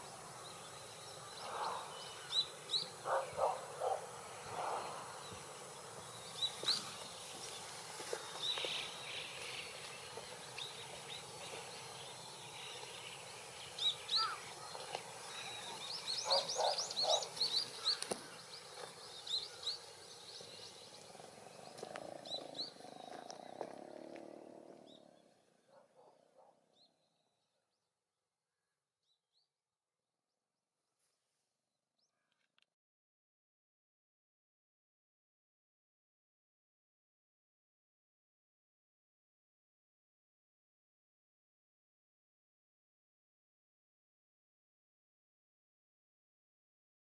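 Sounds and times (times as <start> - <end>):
small birds chirping: 0.0 - 27.7.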